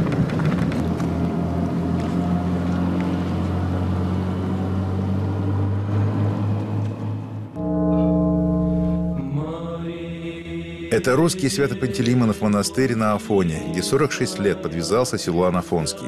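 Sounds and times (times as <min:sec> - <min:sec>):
held musical note: 0:07.6 - 0:09.9.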